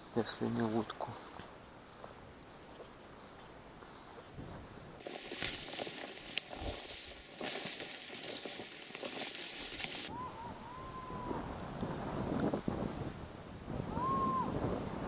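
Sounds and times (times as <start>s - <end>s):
dry reeds rustling and snapping: 5.0s - 10.1s
thin whistle-like call: 10.1s - 11.4s.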